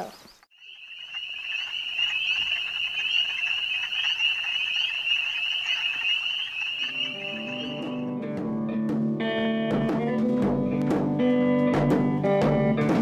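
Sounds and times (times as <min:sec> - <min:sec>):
chorus of animals trilling: 0:00.6 - 0:08.1.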